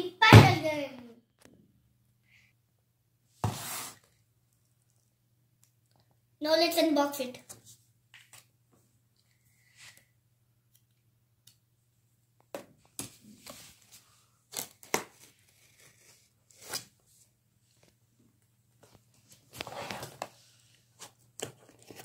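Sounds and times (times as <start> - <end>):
knife slitting tape on cardboard: 14.5 - 16.9.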